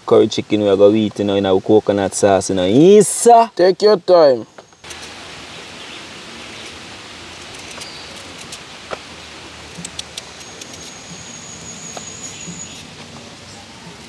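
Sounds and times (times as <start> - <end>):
outdoor background hiss: 0.0 - 14.0
thin high steady tone: 9.8 - 14.0.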